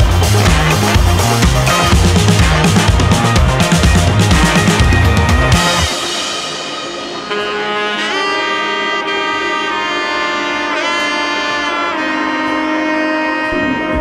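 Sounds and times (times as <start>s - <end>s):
heavy drum beat: 0.0s - 9.5s
sustained music notes: 0.0s - 14.0s.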